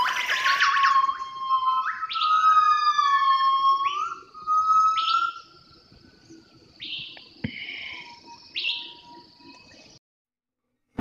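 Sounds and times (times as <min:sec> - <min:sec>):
animal howling: 0:00.0 - 0:05.5
birds chirping: 0:00.0 - 0:10.0.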